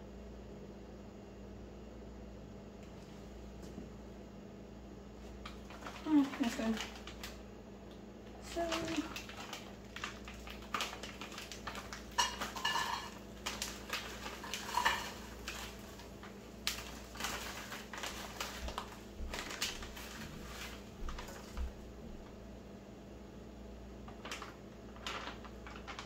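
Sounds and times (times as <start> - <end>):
utensils and dishes clattering: 11.6 - 16.1.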